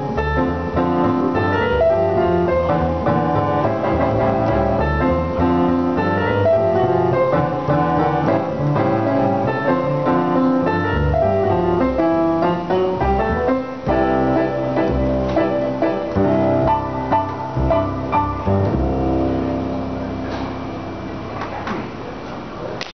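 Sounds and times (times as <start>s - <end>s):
plucked double bass: 0.0s - 21.5s
piano chords and melody: 0.0s - 21.6s.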